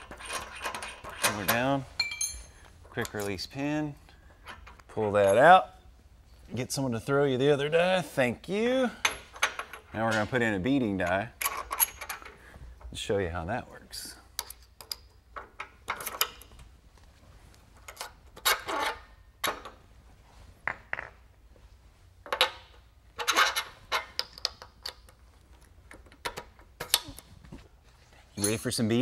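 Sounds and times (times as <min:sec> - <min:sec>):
metal clinks and scrapes: 0:00.0 - 0:03.7, 0:28.2 - 0:29.0.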